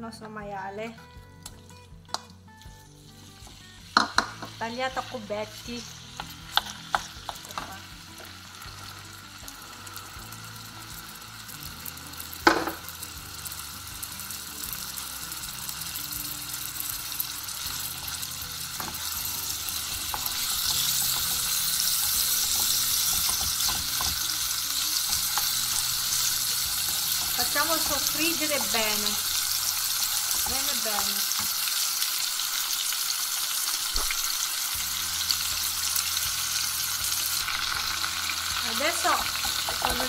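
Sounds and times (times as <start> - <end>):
meat sizzling in a pan: 1.5 - 40.0
spatula scraping pan: 19.8 - 30.6.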